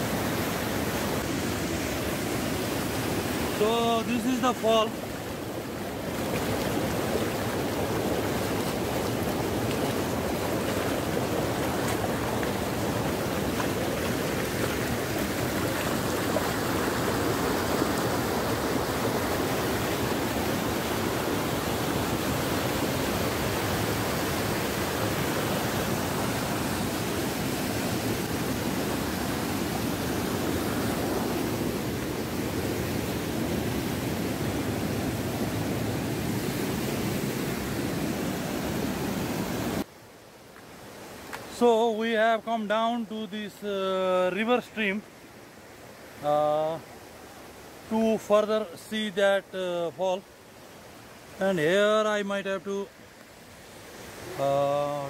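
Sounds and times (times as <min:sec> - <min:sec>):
waterfall rushing over rock: 0:00.0 - 0:39.9, 0:53.4 - 0:55.0.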